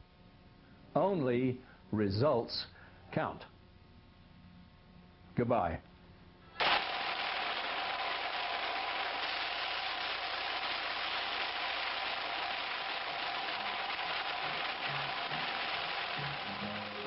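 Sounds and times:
rain striking canopy: 7.9 - 17.0.

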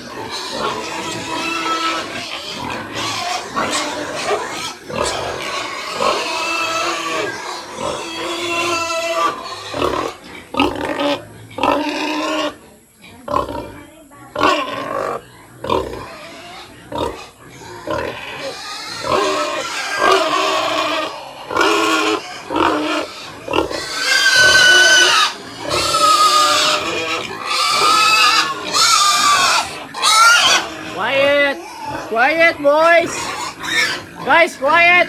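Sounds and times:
piglets squealing: 0.0 - 12.6, 14.4 - 35.0
piglets grunting: 0.0 - 35.0.

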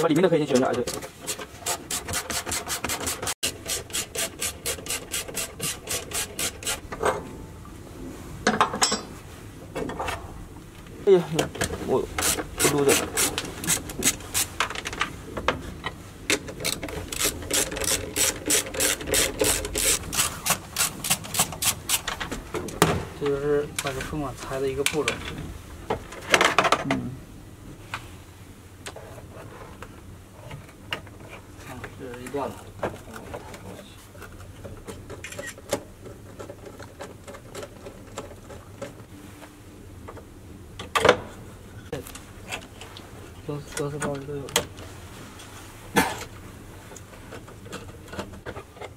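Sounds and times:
screwdriver scraping ratchet strokes: 1.2 - 6.8, 12.2 - 14.5, 16.6 - 22.0.

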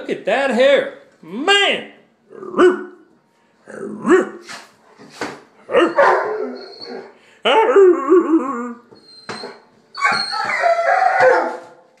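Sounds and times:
dog giving long wavering cries: 5.7 - 11.7.

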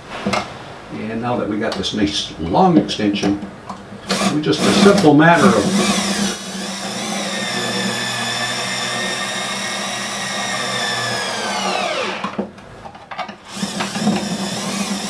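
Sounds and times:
cordless drill driving screw: 4.0 - 12.4, 13.4 - 15.0.

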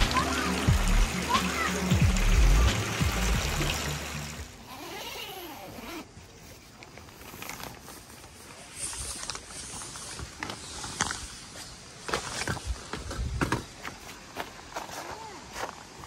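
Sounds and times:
tent zipper unzipping: 4.6 - 6.4.

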